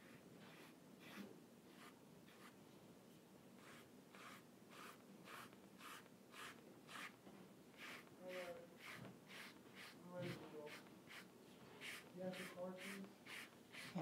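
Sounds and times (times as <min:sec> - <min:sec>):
brush stroking paint on canvas: 0:00.0 - 0:02.6, 0:03.6 - 0:14.0.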